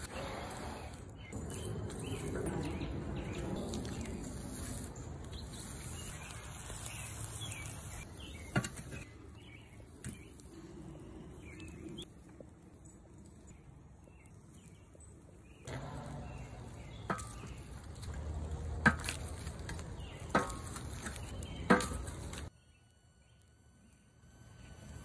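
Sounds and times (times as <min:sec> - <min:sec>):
lobsters sizzling on charcoal: 0:00.0 - 0:22.8
shells clacking on coals: 0:11.3 - 0:22.5.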